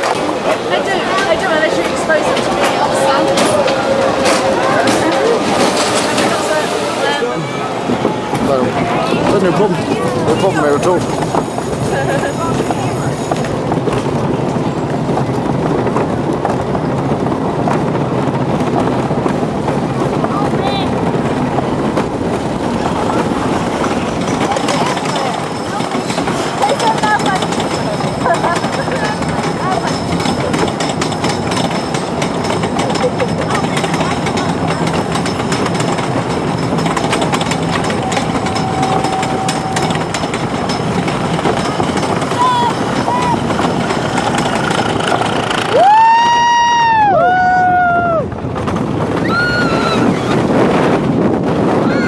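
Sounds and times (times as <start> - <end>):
roller coaster wheels rumbling: 0.0 - 52.0
lift chain clattering: 23.5 - 45.9
sharp clicks and knocks: 23.8 - 45.8.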